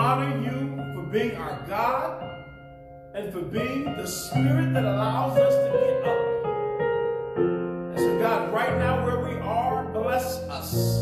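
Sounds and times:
man singing: 0.0 - 2.2, 3.2 - 6.2, 7.9 - 11.0
keyboard sustained chords: 0.0 - 11.0.

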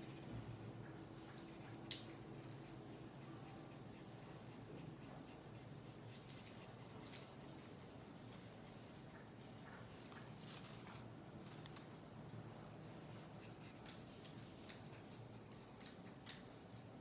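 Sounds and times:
marker scratching on paper: 1.4 - 7.0.

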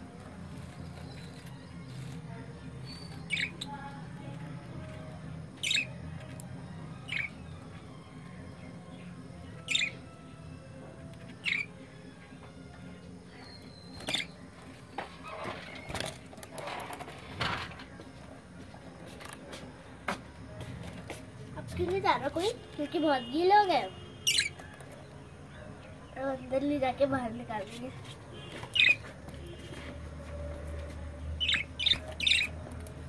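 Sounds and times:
budgerigars chirping: 5.6 - 6.0, 9.6 - 10.0, 11.4 - 11.7, 24.3 - 24.6, 28.8 - 29.0, 31.4 - 32.5.

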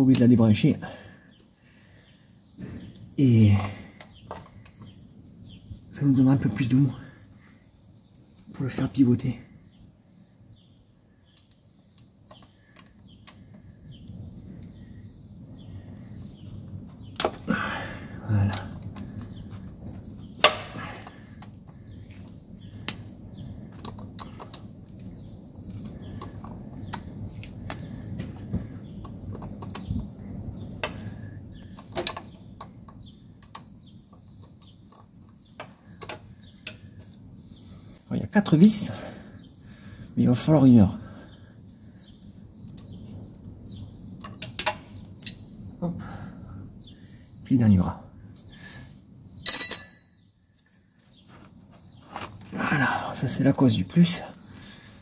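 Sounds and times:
metallic clinks of tools: 49.5 - 50.2.

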